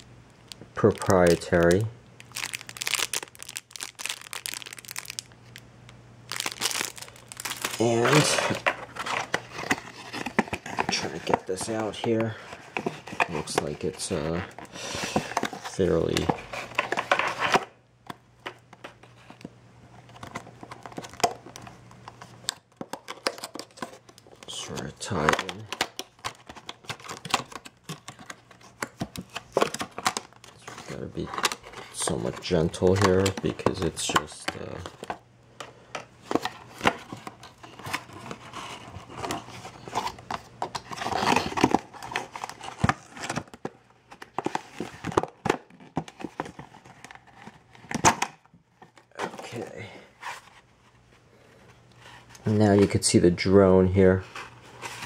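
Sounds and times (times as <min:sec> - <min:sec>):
plastic packaging crinkling: 0:00.0 - 0:14.6.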